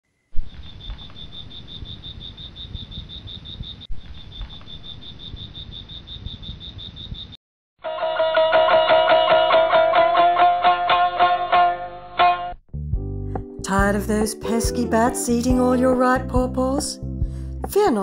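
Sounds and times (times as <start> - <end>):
plucked-string music: 8.5 - 18.0.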